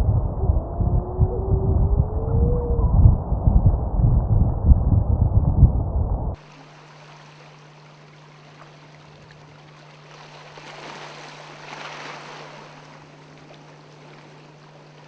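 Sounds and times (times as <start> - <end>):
low hum: 0.0 - 10.6
water lapping and sloshing: 6.4 - 15.0.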